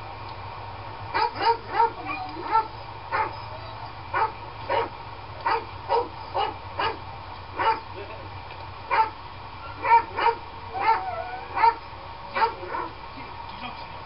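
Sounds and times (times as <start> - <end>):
steady background hum: 0.0 - 14.0
dog barking and yipping: 1.1 - 7.9, 8.9 - 13.0.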